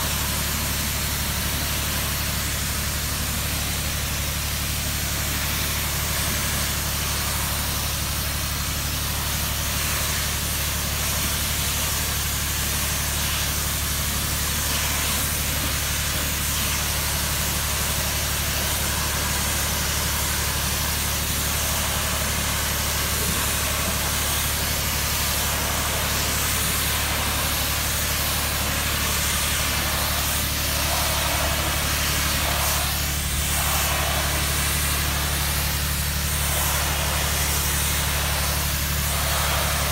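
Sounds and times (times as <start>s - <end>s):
pressure washer engine droning: 0.0s - 39.9s
water spray hissing on siding: 0.0s - 39.9s.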